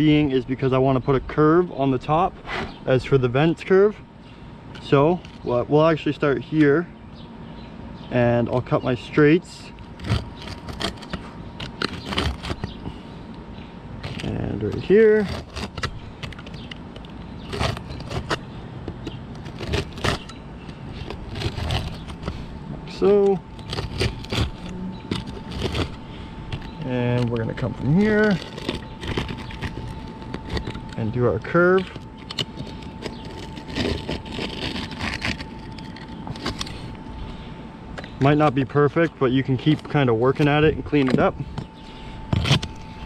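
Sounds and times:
steady low hum: 0.0 - 43.0
knife scraping through shingles: 10.0 - 12.8, 14.0 - 16.6, 17.4 - 18.4, 19.3 - 31.2, 31.8 - 36.9.

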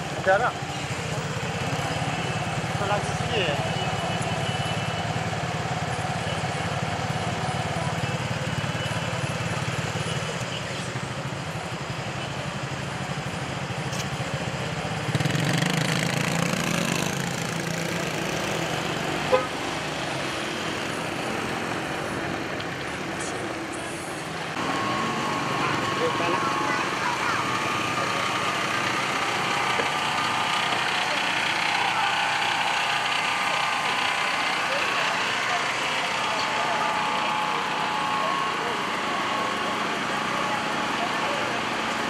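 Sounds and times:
car engines passing: 13.2 - 42.0.

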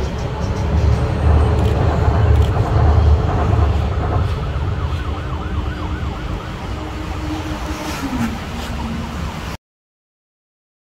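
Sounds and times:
low city traffic rumble: 0.0 - 9.6
faint wavering siren tone: 1.2 - 9.6.

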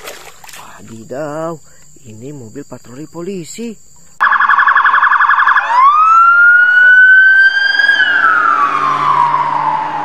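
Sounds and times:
police siren: 4.2 - 10.0.

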